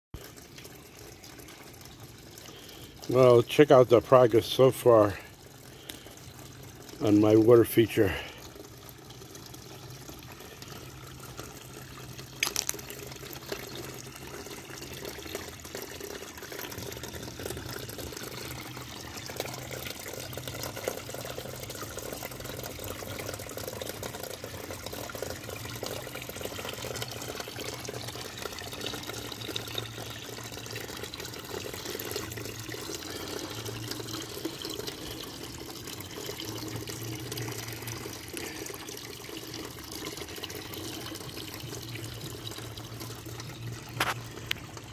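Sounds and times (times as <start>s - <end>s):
water splashing and trickling: 0.2s - 44.9s.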